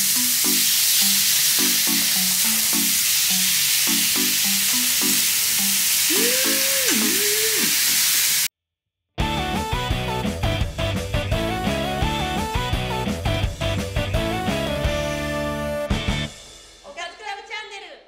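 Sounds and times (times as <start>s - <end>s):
upbeat guitar and drums tune: 0.0s - 7.7s, 9.2s - 16.8s
meat sizzling on a grill: 0.0s - 8.5s.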